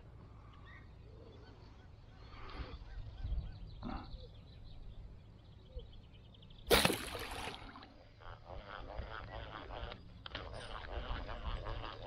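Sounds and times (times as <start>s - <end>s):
arrow hitting water: 6.7s - 7.7s.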